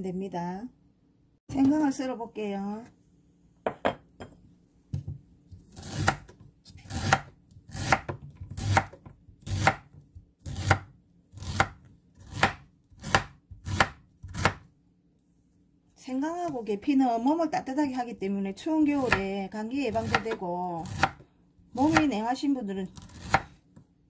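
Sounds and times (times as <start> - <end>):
knife slicing on wooden board: 23.0 - 23.6.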